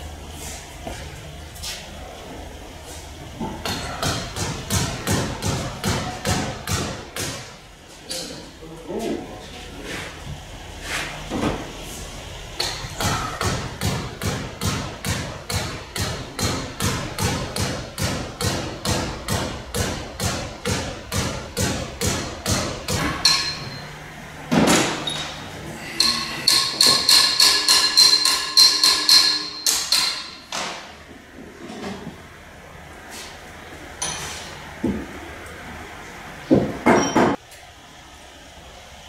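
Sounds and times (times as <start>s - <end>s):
hammer blows: 24.7s - 30.8s.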